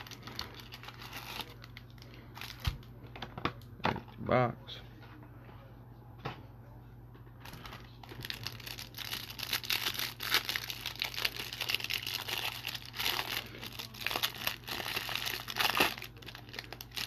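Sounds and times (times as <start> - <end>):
plastic wrapper crinkling: 0.0 - 3.7, 7.4 - 17.0.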